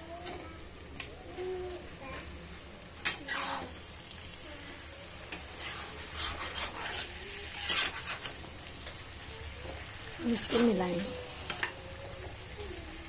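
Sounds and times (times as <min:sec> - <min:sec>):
light sizzle: 0:00.0 - 0:13.0
spatula scraping a pan: 0:03.0 - 0:03.9, 0:04.8 - 0:08.9.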